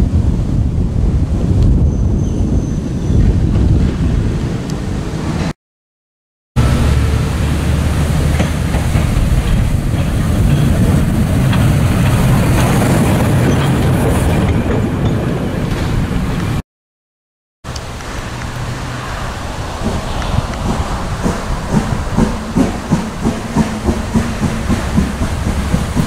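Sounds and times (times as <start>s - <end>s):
steam locomotive rumbling past: 6.6s - 16.6s, 17.8s - 26.0s
wheels clicking on rails: 6.6s - 16.6s, 17.7s - 26.0s.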